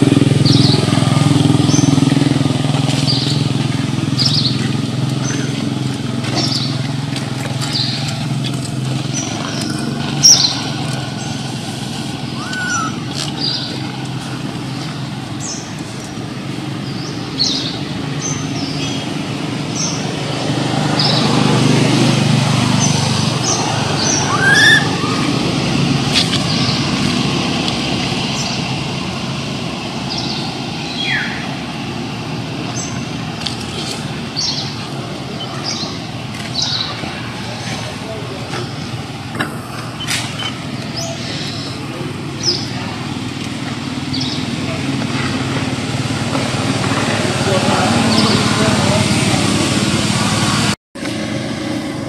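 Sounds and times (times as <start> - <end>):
rising bird call: 12.2 - 13.8, 24.0 - 25.4
high bird chirps: 12.3 - 13.8, 23.4 - 25.2.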